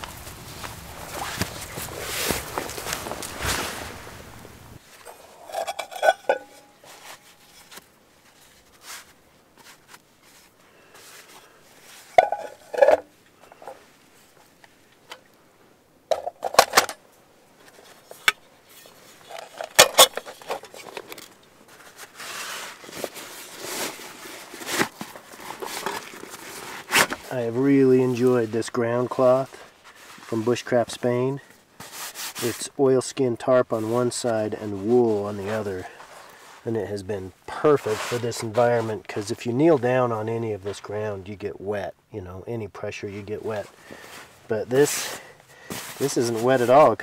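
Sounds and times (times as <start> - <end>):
metal cookware clinking: 5.4 - 6.8.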